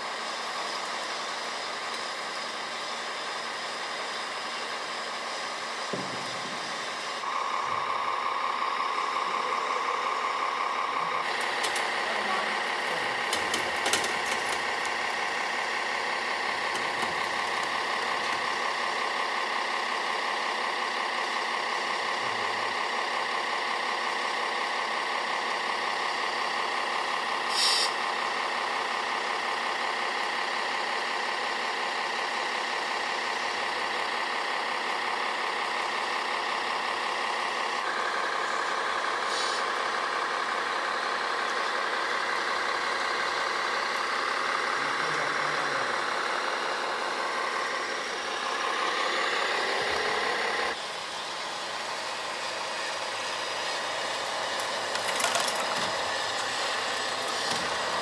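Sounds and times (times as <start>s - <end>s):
toy truck motors whining: 6.5s - 20.9s, 24.4s - 58.0s
short hiss: 27.5s - 28.0s, 39.3s - 39.7s.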